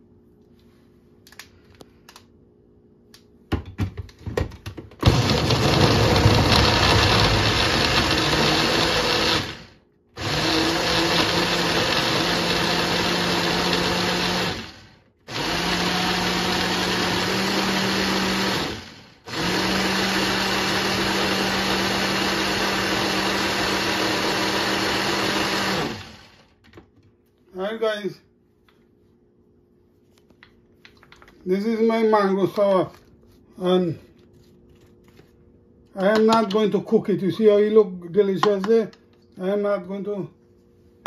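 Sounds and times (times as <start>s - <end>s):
electric blender running: 5.0s - 26.6s.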